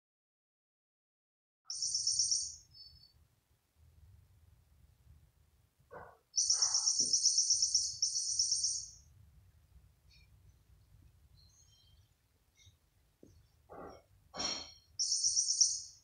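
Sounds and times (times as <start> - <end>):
electronic toy chirping trill: 1.7 - 3.1, 6.4 - 9.0, 15.0 - 16.0.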